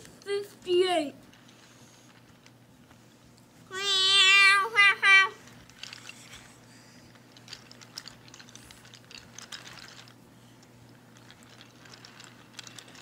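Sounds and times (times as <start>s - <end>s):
toy train wheels clicking on track: 3.7s - 13.0s.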